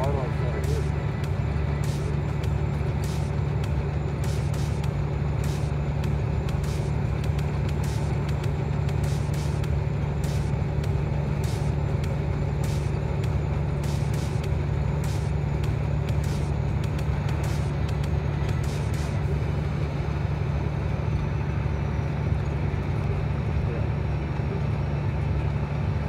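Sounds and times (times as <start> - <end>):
road hiss: 0.0 - 3.6, 4.2 - 10.6, 11.2 - 19.6
vehicle engine drone: 0.0 - 26.0.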